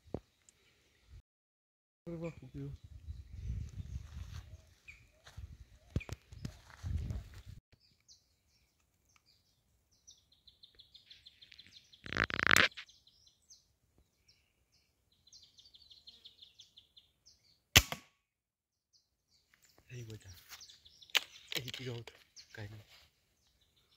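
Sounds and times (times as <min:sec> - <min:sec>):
rifle shot: 0:17.8 - 0:18.2.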